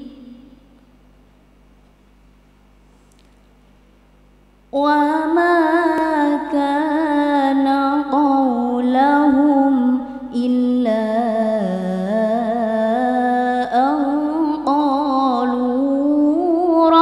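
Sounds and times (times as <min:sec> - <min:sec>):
woman reciting melodically: 0:00.0 - 0:00.8, 0:04.8 - 0:17.0.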